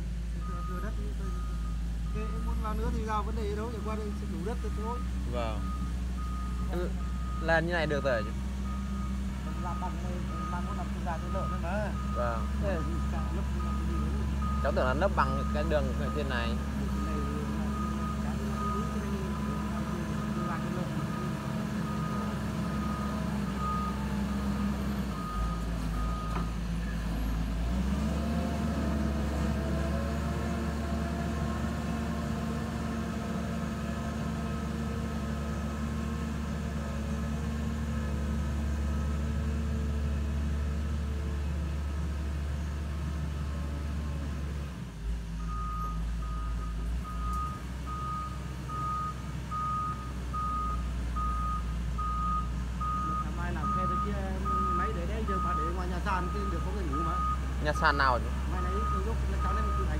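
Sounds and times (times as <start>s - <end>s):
excavator diesel engine under load: 0.0s - 59.9s
high alarm beeps: 0.4s - 26.5s, 45.5s - 59.9s.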